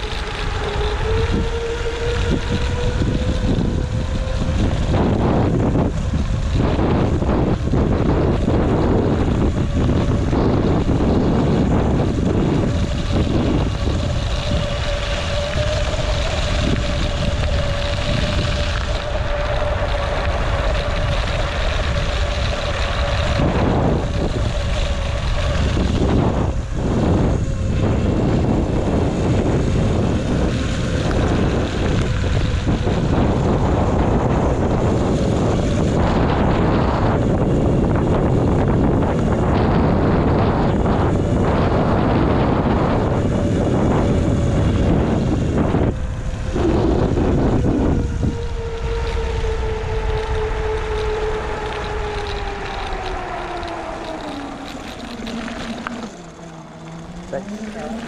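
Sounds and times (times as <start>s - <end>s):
low rumble: 0.0s - 58.0s
steady mid-pitched whine: 0.0s - 58.0s
wind buffeting microphone: 0.0s - 58.0s.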